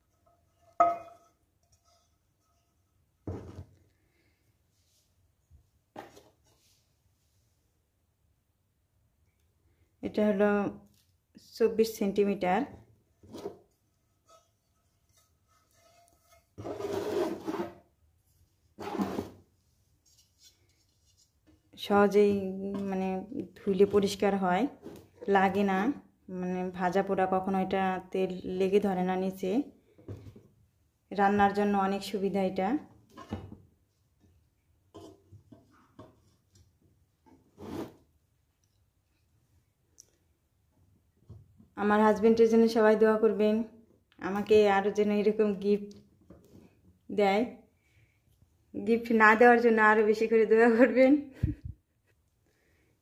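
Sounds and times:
pan and cardboard box scraping: 13.2s - 17.9s, 18.7s - 21.3s, 37.4s - 38.1s.

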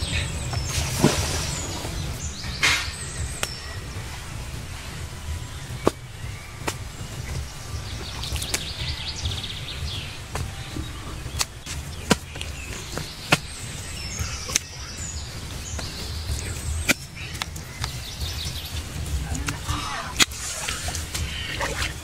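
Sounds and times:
birds chirping: 0.0s - 22.0s
hands scooping dry soil: 0.0s - 22.0s
low rumble: 0.0s - 22.0s.

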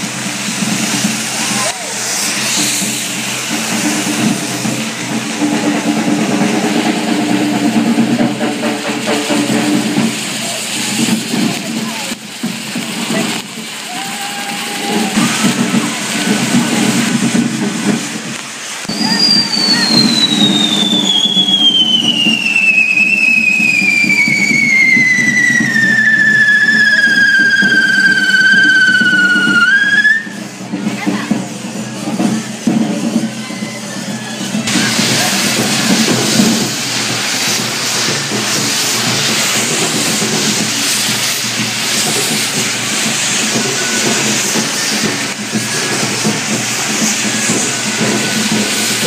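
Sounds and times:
firework fountains hissing: 0.0s - 49.0s
firework whistle falling in pitch: 18.8s - 30.6s, 32.2s - 49.0s.

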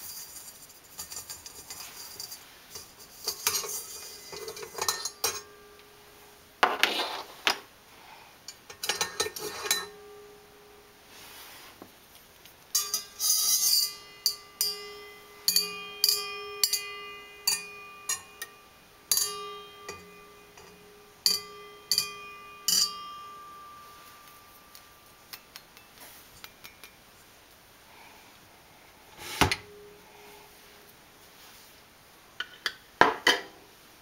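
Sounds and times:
rattling scrape: 0.0s - 5.1s
whisk striking metal bowl: 12.8s - 23.4s.

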